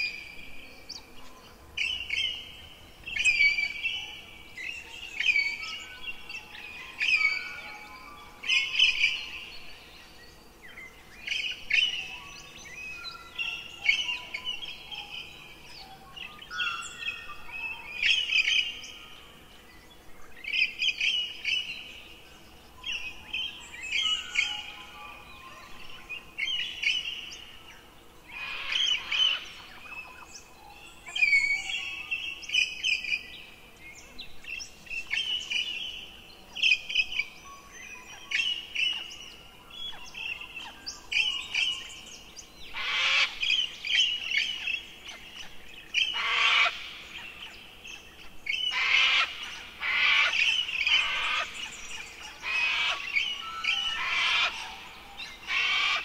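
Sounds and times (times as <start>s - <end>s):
birds chirping and trilling: 0.0s - 56.0s
harsh raspy bird calls: 42.7s - 43.5s, 46.1s - 46.9s, 48.7s - 51.8s, 52.4s - 53.2s, 53.9s - 56.0s.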